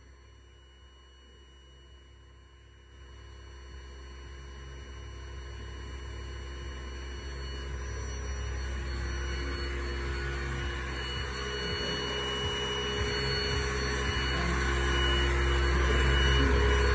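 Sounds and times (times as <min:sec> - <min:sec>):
high-pitched electronic whine: 0:00.0 - 0:16.9
vibration motor humming: 0:04.6 - 0:16.9.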